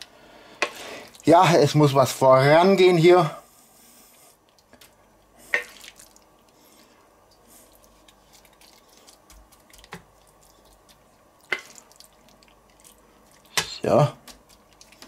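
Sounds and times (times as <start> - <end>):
wet squishing of food: 4.4 - 15.0.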